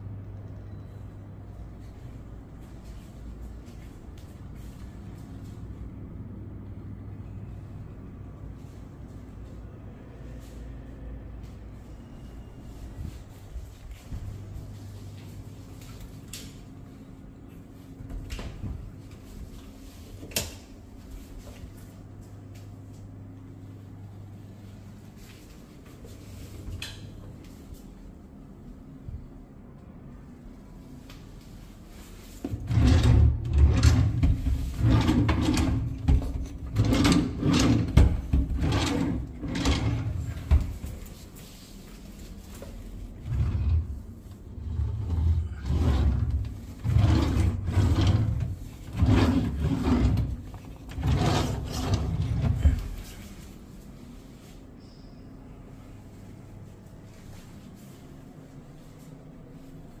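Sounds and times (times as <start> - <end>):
steady low hum: 0.0 - 60.0
drawers sliding on runners: 32.4 - 40.8, 44.6 - 52.8.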